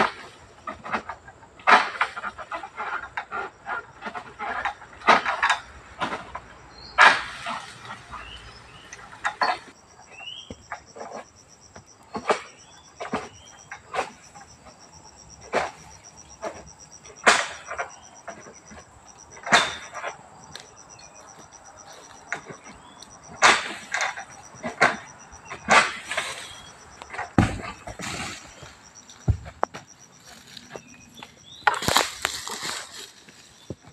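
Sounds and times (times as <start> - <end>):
pulsing insect trill: 6.4 - 33.9
sickle cutting through fronds: 30.2 - 33.7.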